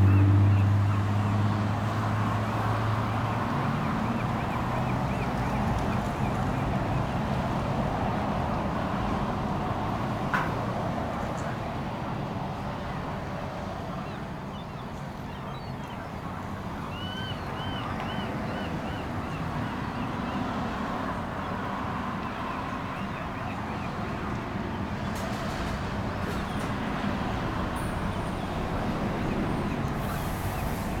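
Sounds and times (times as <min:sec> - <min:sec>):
gull calling: 0:16.8 - 0:20.4.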